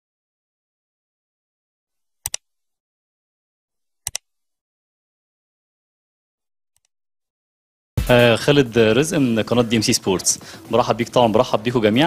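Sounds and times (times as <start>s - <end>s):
mouse double clicks: 2.2s - 2.4s, 4.1s - 4.3s.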